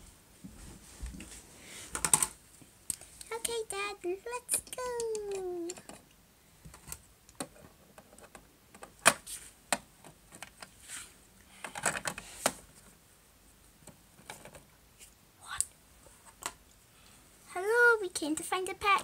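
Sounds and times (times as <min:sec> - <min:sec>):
plastic toys clicking: 0:04.5 - 0:06.0.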